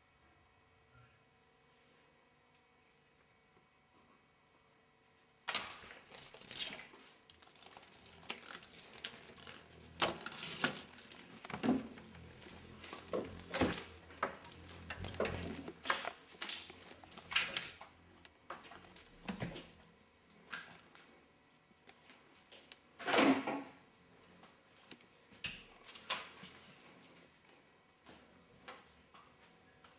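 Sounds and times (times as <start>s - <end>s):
window blinds rattling: 5.5s - 17.8s.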